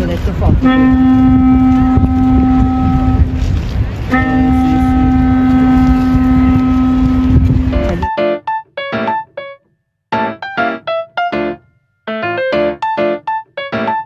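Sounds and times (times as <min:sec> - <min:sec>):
low background rumble: 0:00.0 - 0:08.1
horns holding long notes: 0:00.6 - 0:08.1.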